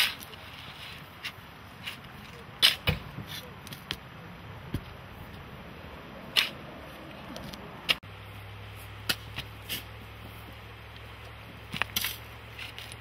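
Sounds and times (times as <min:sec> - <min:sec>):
shovels scraping soil: 0:00.0 - 0:04.0, 0:08.8 - 0:10.6, 0:11.2 - 0:13.0.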